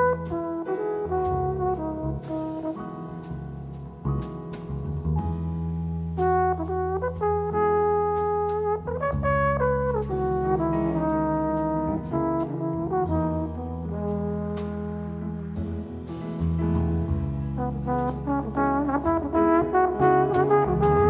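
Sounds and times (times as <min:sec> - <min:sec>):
trombone solo: 0:00.0 - 0:03.3, 0:06.1 - 0:16.2, 0:17.0 - 0:21.0
drums with light cymbals: 0:00.0 - 0:21.0
piano: 0:00.0 - 0:21.0.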